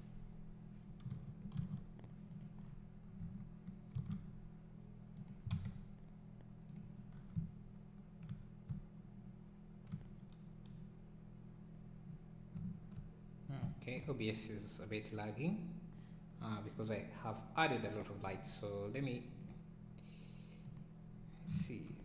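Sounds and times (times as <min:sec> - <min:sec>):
low electrical hum: 0:00.0 - 0:22.0
computer mouse clicks: 0:01.0 - 0:04.3
keyboard key presses: 0:01.0 - 0:04.3, 0:05.2 - 0:05.8.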